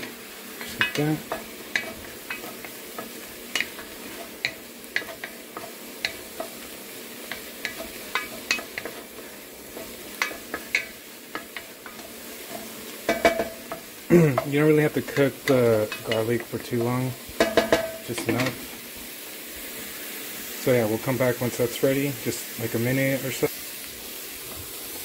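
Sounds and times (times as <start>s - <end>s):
onions sizzling in oil: 0.0s - 25.0s.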